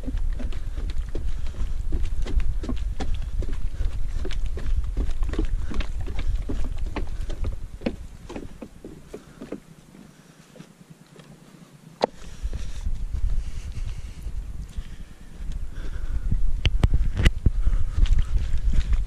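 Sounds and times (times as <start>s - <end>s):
wind rumble on microphone: 0.0s - 9.6s, 12.0s - 19.0s
footsteps on a trail: 0.0s - 19.0s.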